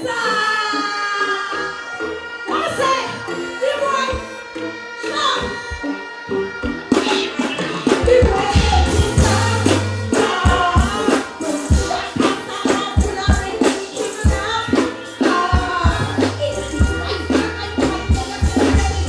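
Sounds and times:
woman singing into microphone: 0.0s - 19.0s
drums: 5.1s - 19.0s
bass line: 8.1s - 12.2s, 15.6s - 19.0s.

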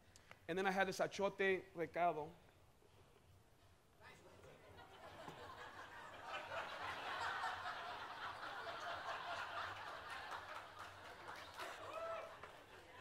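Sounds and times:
audience murmuring and chuckling: 4.4s - 13.0s.

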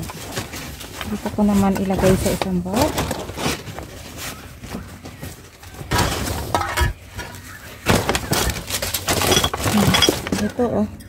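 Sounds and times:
rubbish bags rustling: 0.0s - 10.9s
bottles and cans clinking: 5.8s - 10.7s.

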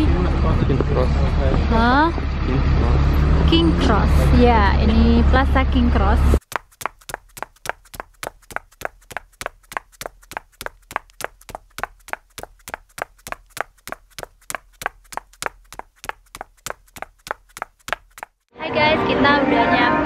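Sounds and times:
hard-soled footsteps on hard floor: 6.4s - 18.5s.

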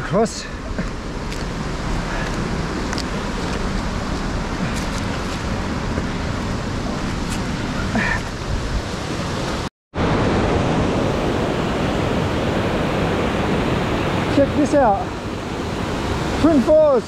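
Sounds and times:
creek water rushing over boulders: 0.1s - 17.0s.

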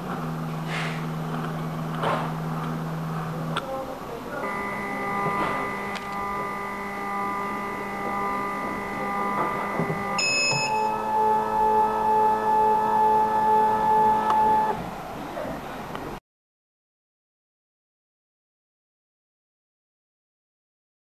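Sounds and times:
autosampler motor whine: 0.0s - 3.7s, 4.3s - 15.0s
short high beep: 9.2s - 11.1s.

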